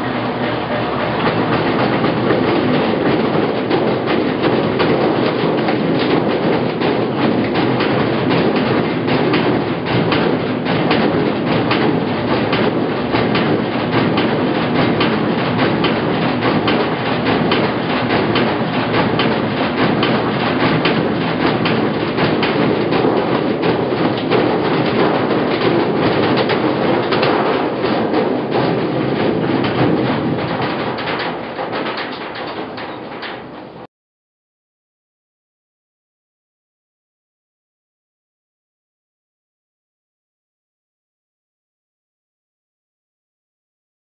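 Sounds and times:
washing machine clatter: 0:00.0 - 0:33.9.

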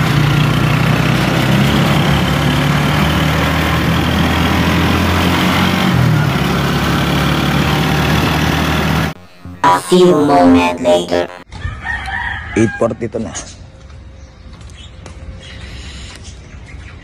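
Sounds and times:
wind and road noise: 0:00.0 - 0:09.2
vehicle engine running: 0:00.0 - 0:09.6.

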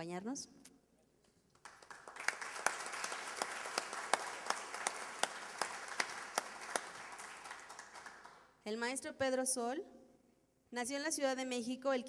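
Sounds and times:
audience applauding: 0:01.6 - 0:08.5
close single person clapping: 0:01.6 - 0:08.5.

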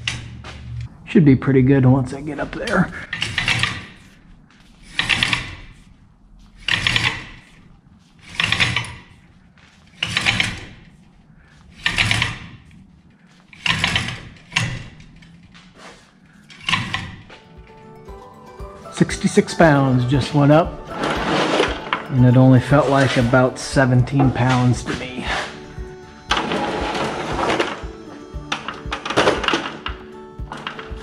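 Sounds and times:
rope rasping through pulley block: 0:02.6 - 0:17.3.

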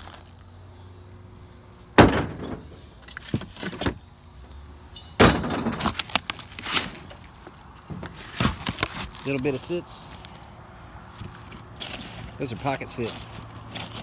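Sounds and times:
cardboard boxes rustling and rattling: 0:02.4 - 0:04.0, 0:05.2 - 0:09.4, 0:11.2 - 0:14.0.

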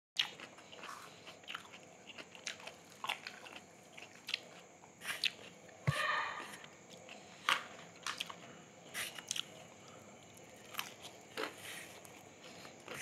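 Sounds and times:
chewing crispy fried chicken: 0:00.2 - 0:05.8, 0:06.8 - 0:13.0.

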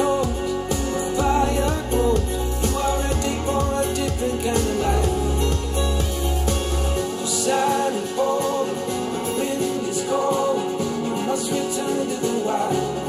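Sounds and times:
heavy low bass: 0:00.0 - 0:07.0
song through speakers: 0:00.0 - 0:13.0.

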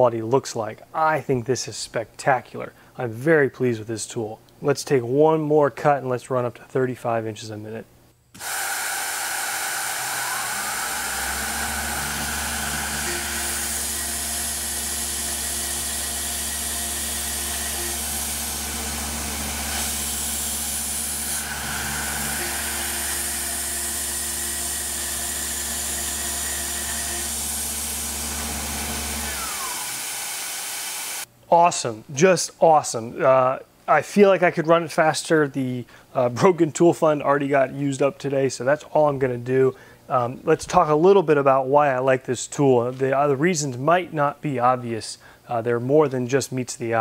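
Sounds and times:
high cutting tone: 0:08.4 - 0:31.2
milling machine drone: 0:09.3 - 0:31.2.

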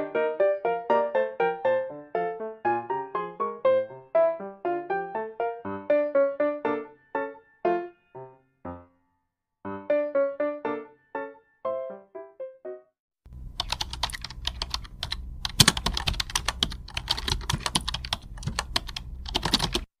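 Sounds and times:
low steady hum: 0:13.3 - 0:19.8
fast typing on keyboard: 0:13.6 - 0:19.9.

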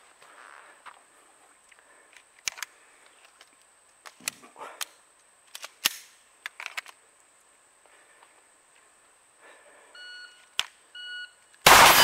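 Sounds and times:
pistol shots: 0:11.7 - 0:12.0.

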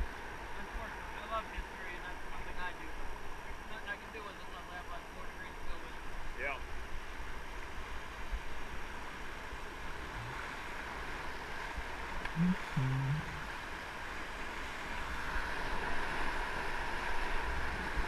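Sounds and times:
brief low-pitched sound: 0:12.4 - 0:13.5.

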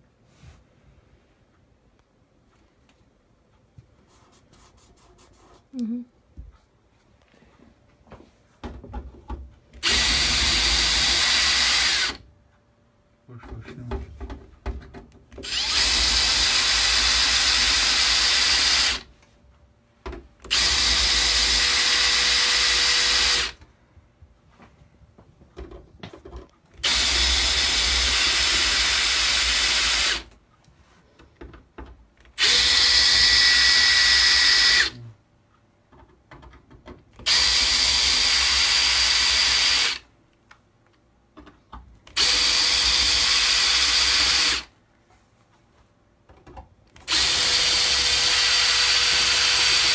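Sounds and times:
cordless drill drilling metal: 0:09.8 - 0:12.2, 0:15.4 - 0:19.1, 0:20.5 - 0:23.6, 0:26.8 - 0:30.3, 0:32.4 - 0:35.0, 0:37.2 - 0:40.0, 0:42.1 - 0:44.7, 0:47.0 - 0:49.9.

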